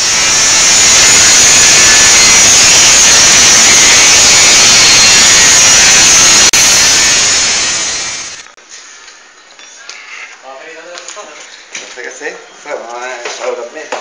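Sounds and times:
angle grinder cutting steel: 0:00.0 - 0:08.6.

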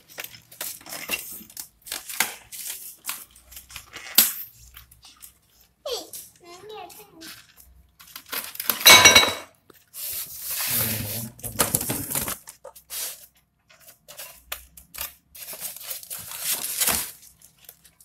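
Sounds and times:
foam and cardboard scraping: 0:09.9 - 0:13.3.

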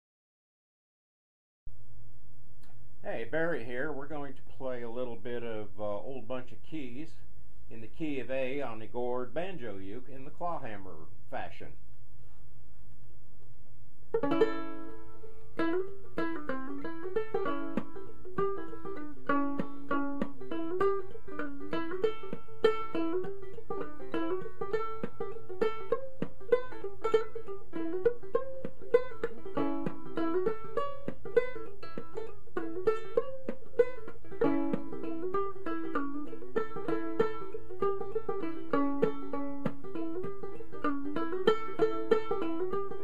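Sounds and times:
banjo ukulele plucked notes: 0:14.1 - 0:43.0.

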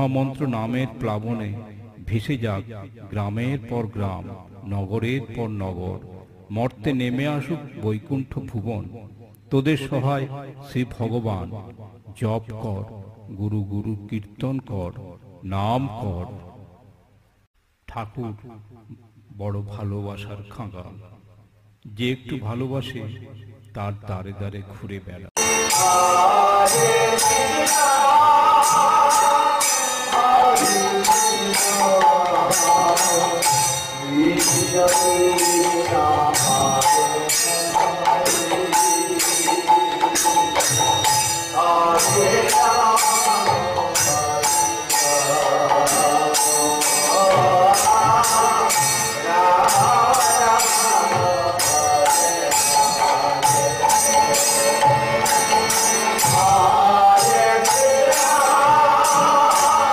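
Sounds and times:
jingling hand cymbals: 0:25.4 - 0:59.9.

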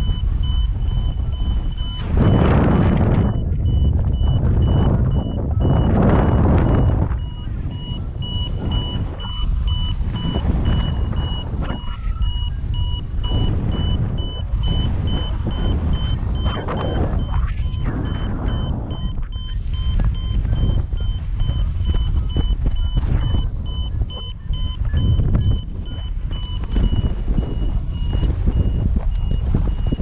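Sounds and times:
gusty wind on microphone: 0:00.0 - 0:30.0
variometer beeping: 0:00.0 - 0:30.0.

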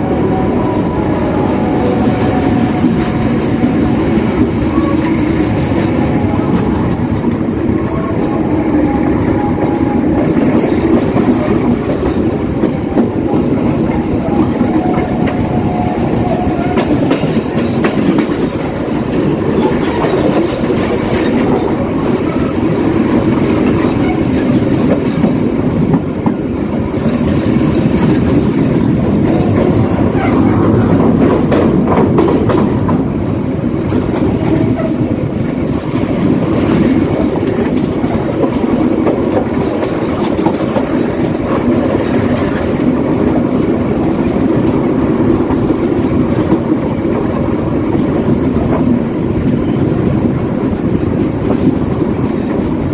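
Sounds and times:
train rumbling at speed: 0:00.0 - 0:52.9.

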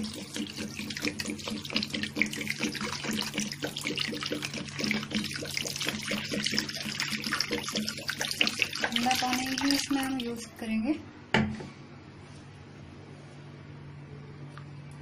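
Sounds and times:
water pouring and splashing: 0:00.0 - 0:10.5.

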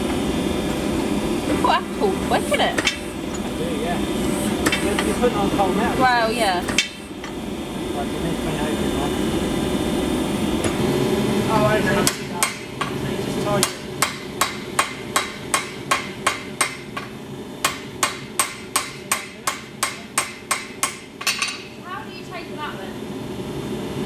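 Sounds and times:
loud steady press machine: 0:00.0 - 0:21.8
hammer striking hot steel: 0:02.7 - 0:03.5, 0:04.4 - 0:05.2, 0:06.6 - 0:07.4, 0:12.0 - 0:21.8.

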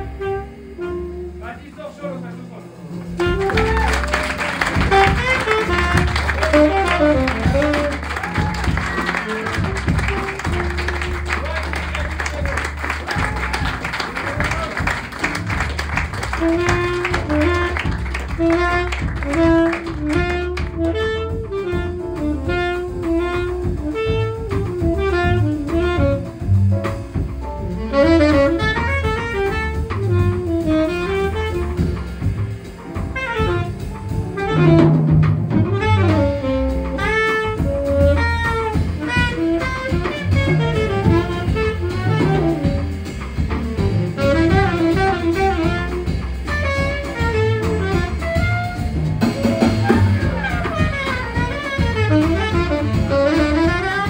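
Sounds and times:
saxophone melody: 0:00.0 - 0:01.7, 0:03.0 - 0:54.0
double bass: 0:00.0 - 0:54.0
drums: 0:00.0 - 0:54.0.

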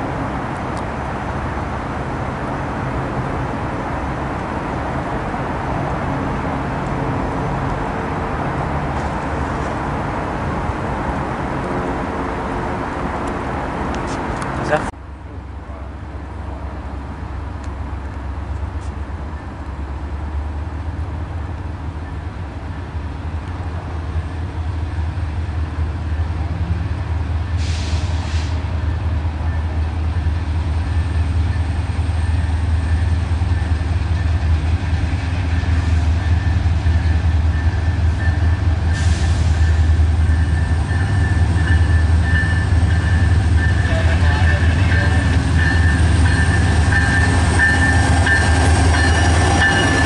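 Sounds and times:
locomotive engine rumble: 0:00.0 - 0:50.0.

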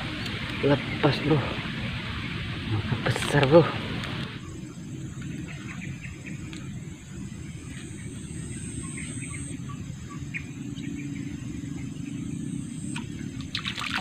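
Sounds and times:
insect drone: 0:00.0 - 0:14.0
small chirps or ticks: 0:06.3 - 0:06.8, 0:12.7 - 0:13.5.

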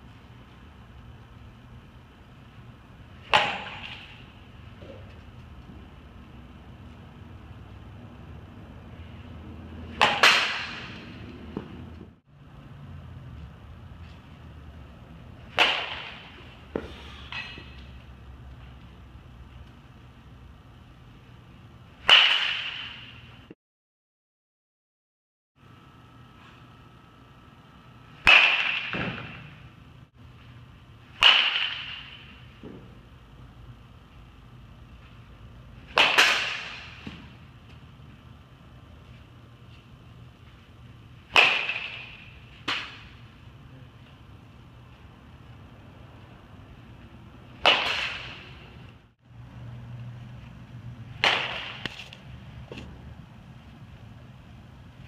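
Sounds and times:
bat cracking a baseball: 0:03.2 - 0:04.2, 0:09.9 - 0:11.7, 0:15.4 - 0:17.8, 0:22.0 - 0:23.2, 0:28.2 - 0:29.6, 0:31.1 - 0:32.8, 0:35.9 - 0:37.4, 0:41.2 - 0:43.2, 0:47.6 - 0:48.7, 0:51.1 - 0:52.9.

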